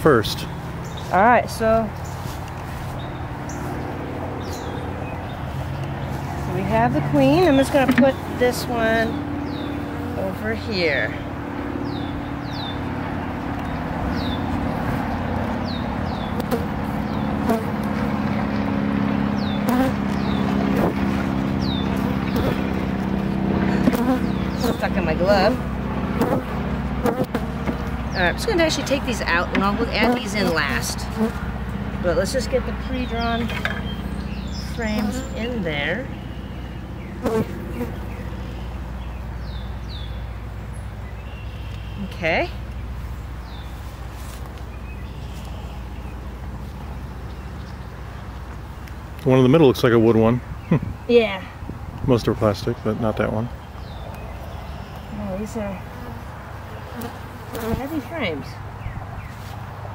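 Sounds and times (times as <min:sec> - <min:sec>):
bees buzzing: 0:00.1 - 0:40.3, 0:53.8 - 0:58.6.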